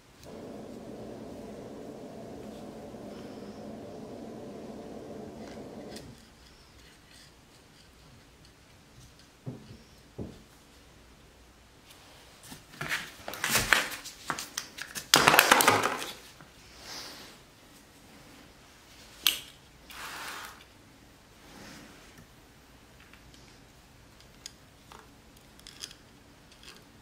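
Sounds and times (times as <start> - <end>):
low steady hum: 0.0 - 6.8.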